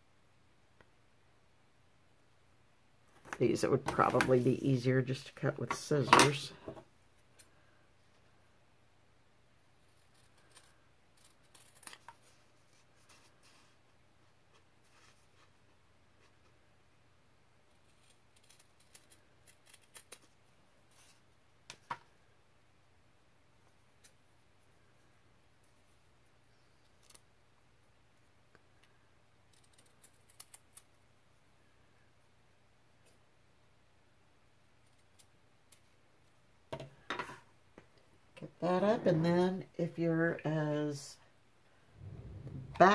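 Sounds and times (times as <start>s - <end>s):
small scissors snipping: 10.1s - 12.2s, 29.5s - 30.9s.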